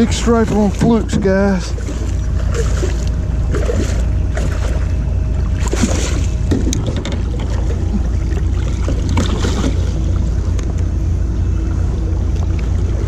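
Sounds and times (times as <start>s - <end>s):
water splashing: 0.0s - 11.0s
steady low rumble: 0.0s - 13.0s
knocking on aluminum boat: 0.3s - 1.9s, 6.4s - 7.8s.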